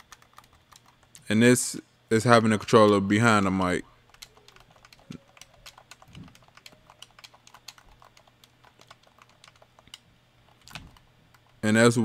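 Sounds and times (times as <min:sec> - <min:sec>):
controller buttons clicking: 0:02.6 - 0:11.6.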